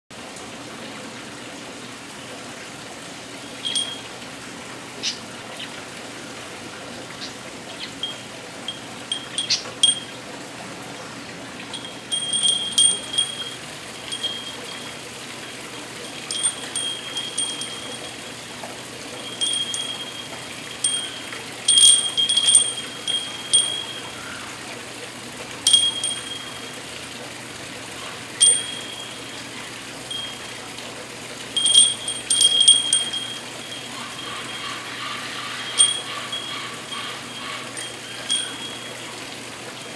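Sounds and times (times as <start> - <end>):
metal rings clinking: 3.6 - 4.1, 8.0 - 10.1, 11.7 - 24.2, 25.6 - 26.8, 28.4 - 30.6, 31.5 - 39.1.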